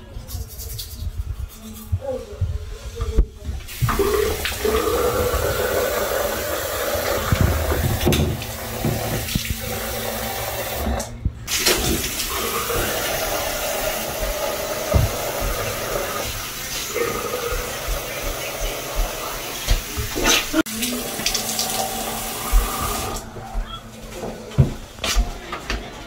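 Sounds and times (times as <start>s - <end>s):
tap water splashing in sink: 7.0s - 9.8s, 11.5s - 13.1s, 14.1s - 16.3s.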